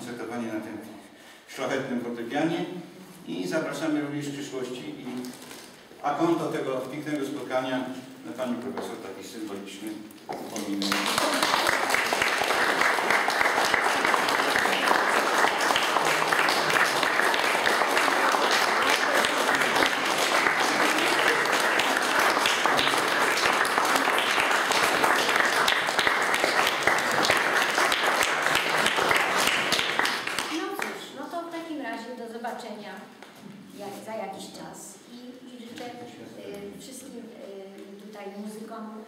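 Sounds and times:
audience applauding: 0:10.4 - 0:30.9.

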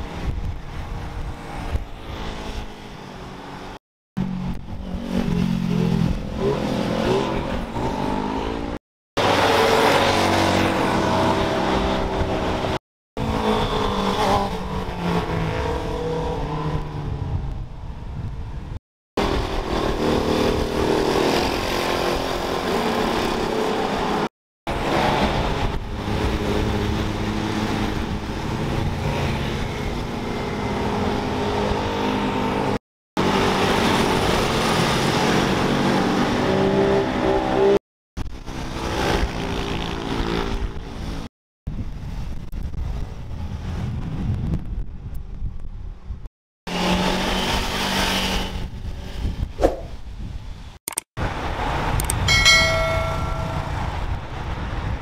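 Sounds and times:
vehicle engines revving past: 0:01.2 - 0:17.5, 0:19.2 - 0:24.2.

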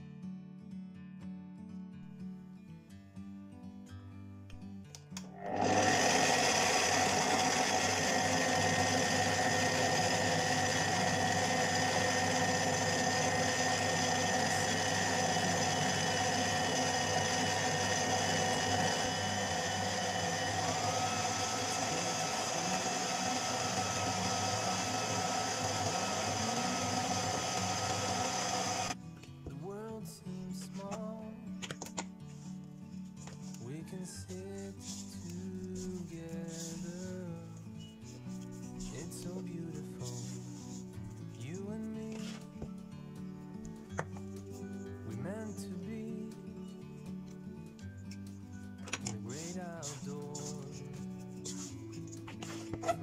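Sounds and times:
stand mixer running: 0:05.4 - 0:29.0, 0:49.9 - 0:50.5.

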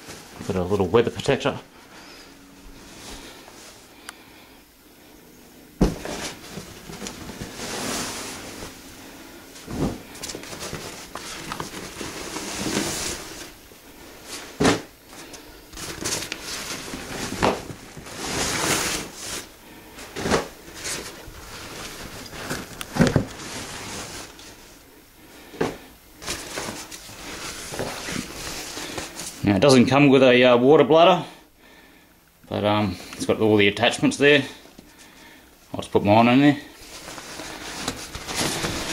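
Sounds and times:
dull knocks and thumps: 0:05.8 - 0:06.2
fabric rustling: 0:05.8 - 0:24.8, 0:36.7 - 0:38.9.

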